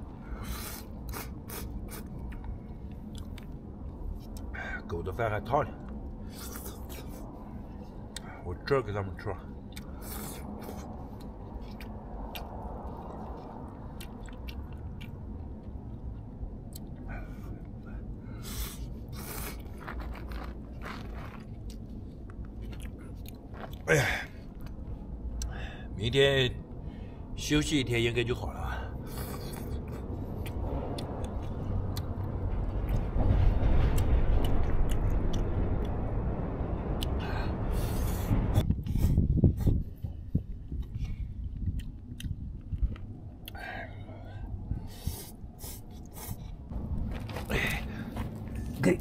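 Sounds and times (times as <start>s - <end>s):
low rumble: 0.0s - 49.0s
chewing and eating: 0.4s - 4.5s, 9.4s - 25.5s, 29.0s - 33.1s, 37.8s - 48.8s.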